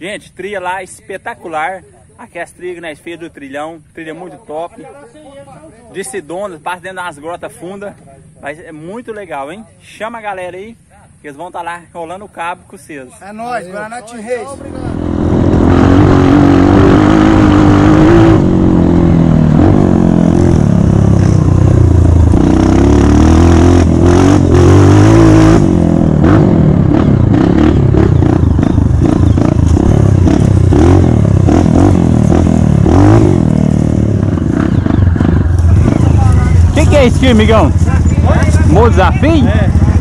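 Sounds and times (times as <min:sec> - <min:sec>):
dirt bike engine revving: 0:14.6 - 0:40.0.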